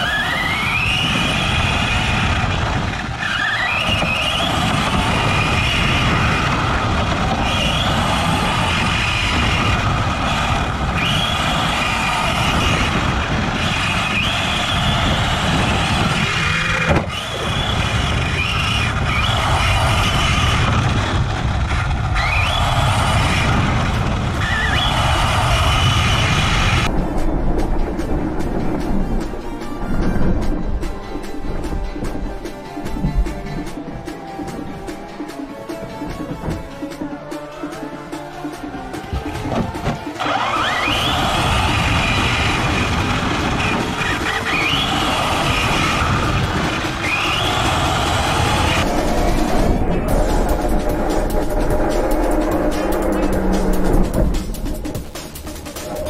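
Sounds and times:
electric motor whining: 0:00.0 - 0:26.9, 0:39.1 - 0:50.6
chassis rumble and rattle: 0:00.0 - 0:56.0.

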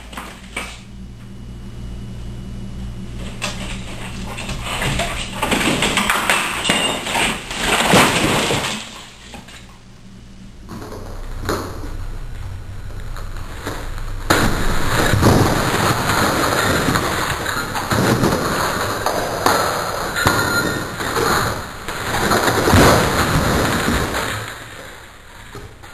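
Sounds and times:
bricks and rubble crashing: 0:03.4 - 0:09.5, 0:13.7 - 0:25.0.

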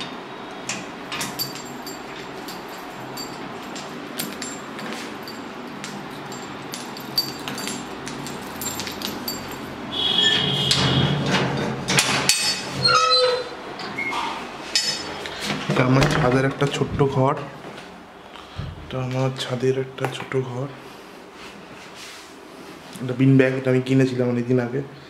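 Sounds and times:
keys jingling against padlock: 0:01.0 - 0:10.1
metal scrape with squeak: 0:10.0 - 0:11.7, 0:12.7 - 0:14.4.

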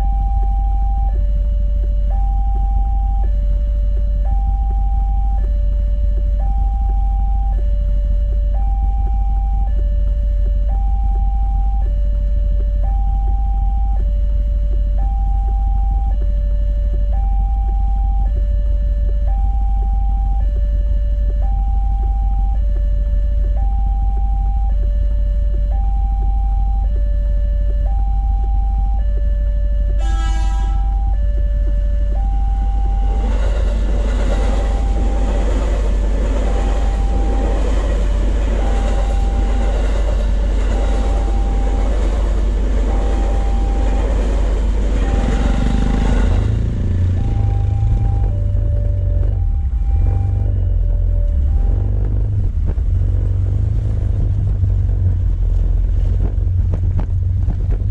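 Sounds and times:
low rumble: 0:00.0 - 0:30.1, 0:30.8 - 0:57.9
level crossing two-tone alarm: 0:00.0 - 0:52.9
electric train running: 0:29.9 - 0:57.9
train horn blast: 0:30.0 - 0:31.0.

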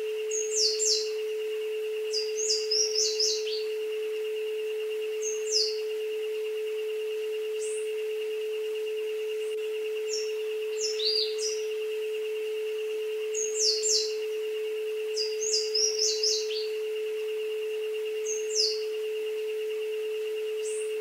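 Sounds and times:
steady pure tone: 0:00.0 - 0:21.0
birds chirping: 0:00.2 - 0:06.5, 0:09.4 - 0:19.1.

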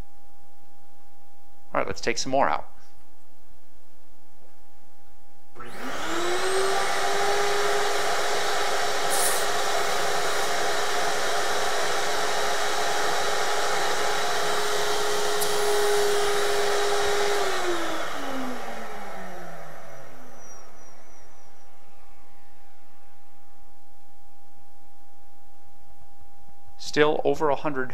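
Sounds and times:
vacuum motor whining: 0:05.6 - 0:23.3.

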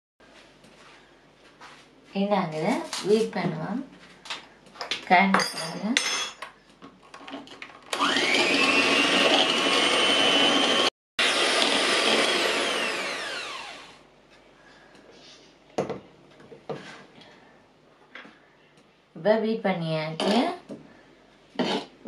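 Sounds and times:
electric hand mixer whining: 0:07.9 - 0:14.0.

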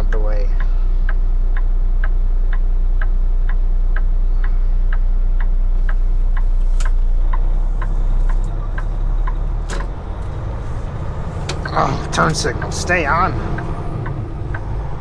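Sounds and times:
truck diesel engine drone: 0:00.0 - 0:15.0
turn-signal flasher ticking: 0:00.6 - 0:15.0.

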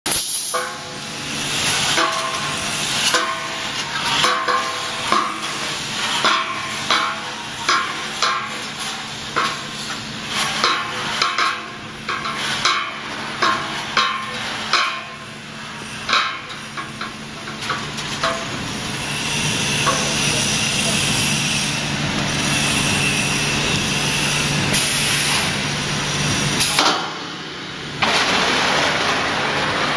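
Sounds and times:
pneumatic hissing bursts: 0:00.1 - 0:06.9, 0:18.9 - 0:25.6, 0:26.2 - 0:26.9
welding machine clanks: 0:00.1 - 0:29.9
steady machine hum: 0:00.5 - 0:29.9.

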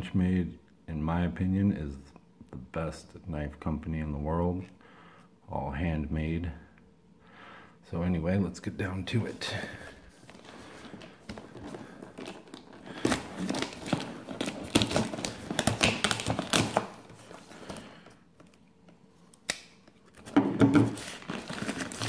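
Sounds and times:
plastic mailer crinkling and tearing: 0:09.5 - 0:18.6, 0:20.1 - 0:22.0.

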